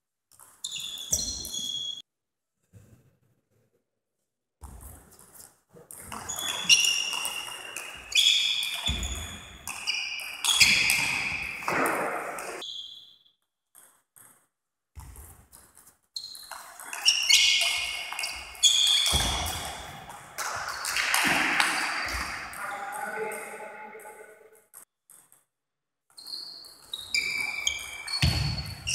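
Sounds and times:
table tennis ball pinging: 6.0s - 12.7s.

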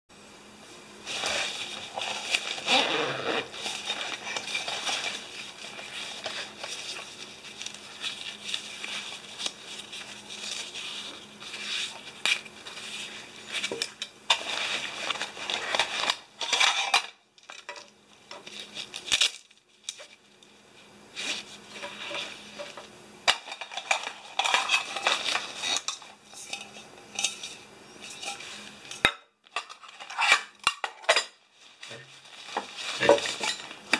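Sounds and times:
nylon sack rustling: 1.0s - 6.6s
metal cookware clinking: 25.9s - 29.0s.

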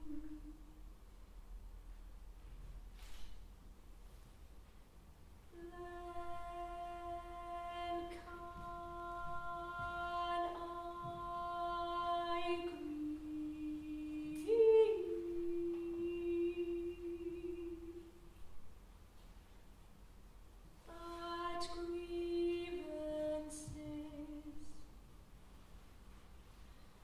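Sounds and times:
woman singing long held notes: 5.5s - 18.3s, 20.8s - 24.9s.

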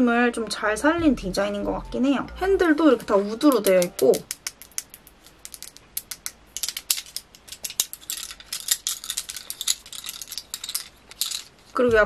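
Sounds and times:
wooden handles knocking and clicking: 3.5s - 11.6s.

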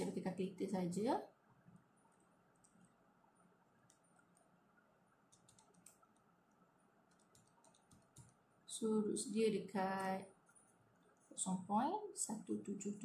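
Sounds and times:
calculator buttons clicking: 5.3s - 6.1s, 7.1s - 8.4s.

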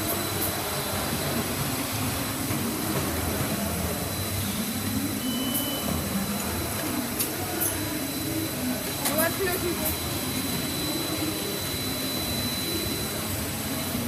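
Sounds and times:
filling machine mechanical hum: 0.0s - 14.0s
faint high whine: 9.8s - 14.0s.

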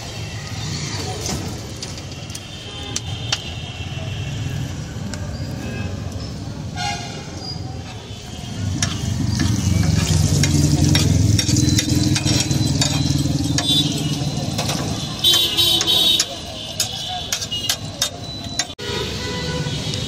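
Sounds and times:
metal spatula scraping iron: 8.7s - 18.8s.

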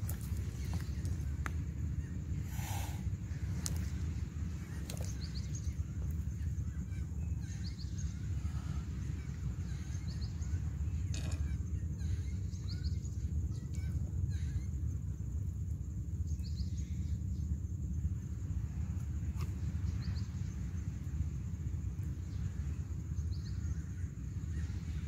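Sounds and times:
faint bird chirps: 0.0s - 15.2s
low rumble on microphone: 0.0s - 25.0s.

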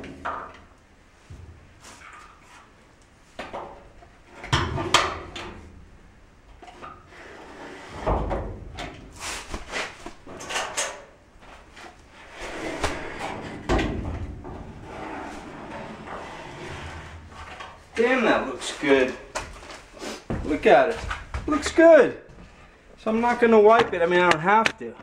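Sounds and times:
knocks and scuffing of handwork: 8.9s - 10.4s.

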